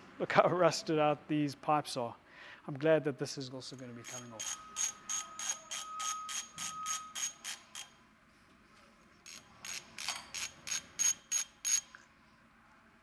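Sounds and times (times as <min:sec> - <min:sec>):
ratchet spanner clicking: 0:04.0 - 0:08.0, 0:09.3 - 0:12.0.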